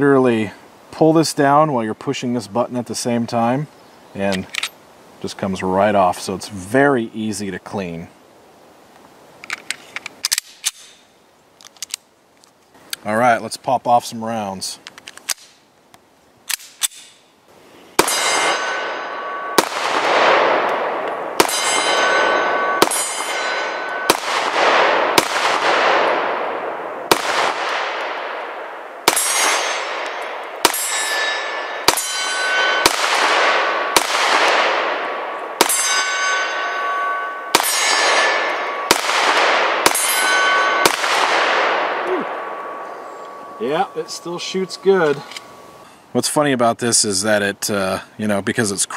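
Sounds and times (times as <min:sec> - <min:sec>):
metallic ringing tone: 0:18.0 - 0:19.6, 0:21.4 - 0:24.2, 0:29.2 - 0:32.9, 0:35.6 - 0:38.9, 0:39.9 - 0:41.0, 0:42.2 - 0:45.8
pistol shots echoing: 0:18.0 - 0:45.2.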